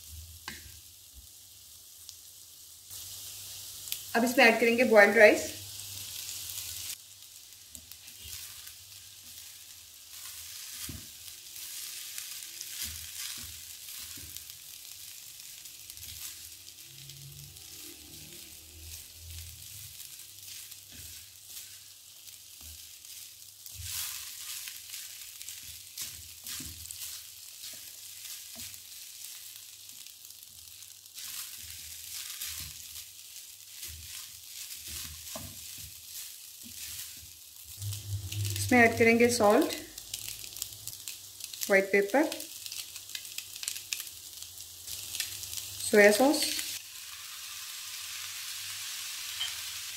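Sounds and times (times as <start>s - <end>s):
rice sizzling in a wok: 0.0s - 49.9s
wooden spatula scraping a pan: 7.8s - 9.5s, 10.1s - 14.4s, 19.7s - 28.9s, 31.2s - 39.8s.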